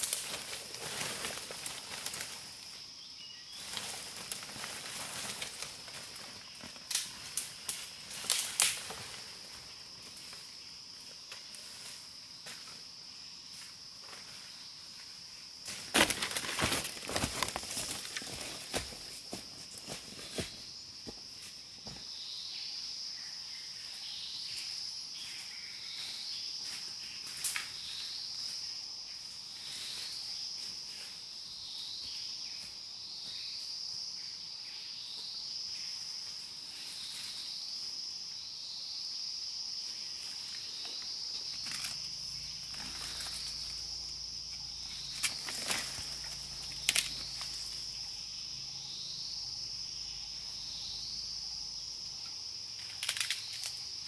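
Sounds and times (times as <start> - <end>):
twigs and leaves snapping rustling: 0.0 - 2.7, 3.6 - 10.4, 15.6 - 20.6, 40.2 - 48.0, 52.8 - 53.9
forest insect chorus: 0.0 - 54.0.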